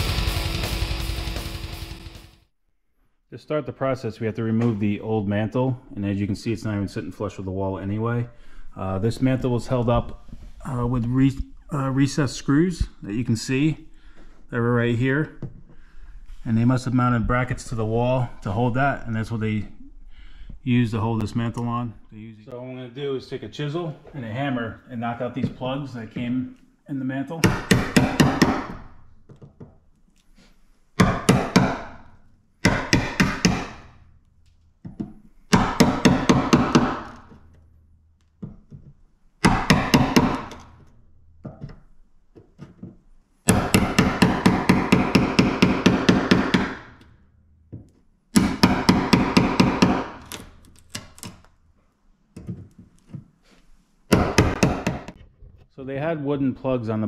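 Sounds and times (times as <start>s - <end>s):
hammer tapping a chisel: 31.0s - 33.9s, 42.4s - 47.1s, 47.7s - 51.4s, 54.1s - 55.2s.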